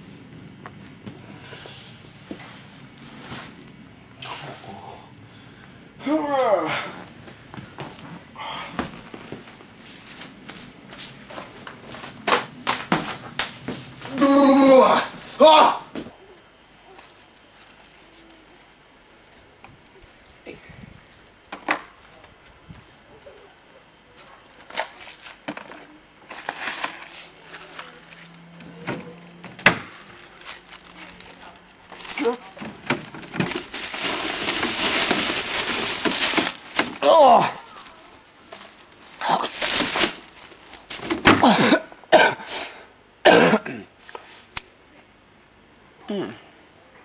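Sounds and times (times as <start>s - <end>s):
shuffling on a hard floor: 8.9s - 12.2s
packet crackling and crinkling: 16.9s - 28.6s, 29.7s - 41.2s.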